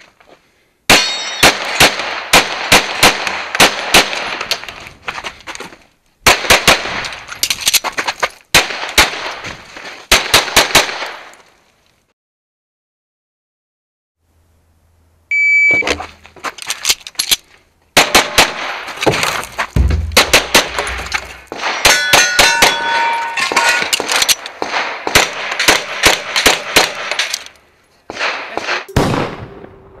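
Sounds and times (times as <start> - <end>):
steel targets ringing: 0.9 - 1.6, 19.8 - 24.0
pistol firing rapid shots: 0.9 - 4.4, 6.3 - 7.0, 10.1 - 11.2, 18.0 - 18.8, 20.0 - 22.0, 24.0 - 27.3
shot timer beep: 15.3 - 15.9.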